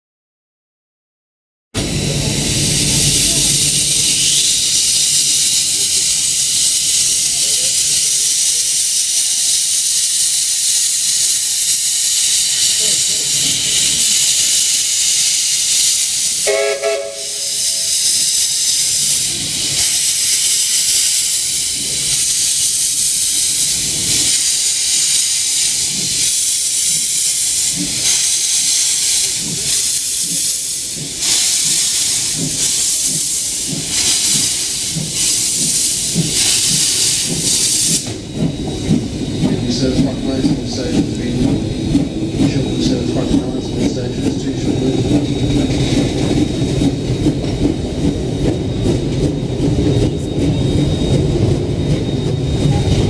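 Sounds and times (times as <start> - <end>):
locomotive exhaust chuffs: 1.8 - 53.0
steam hissing: 1.8 - 53.0
steam locomotive whistle: 16.3 - 17.9.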